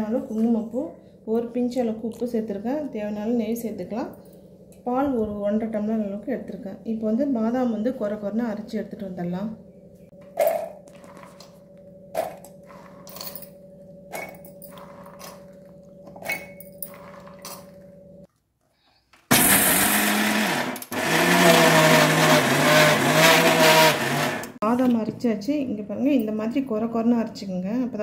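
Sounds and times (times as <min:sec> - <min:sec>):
mixer grinder running loudly: 0:19.3 - 0:24.6.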